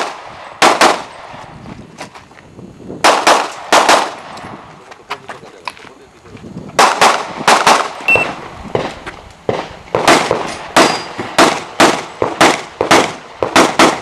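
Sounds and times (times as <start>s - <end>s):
handgun shots: 6.8s - 14.0s
steel target ringing: 10.8s - 11.2s.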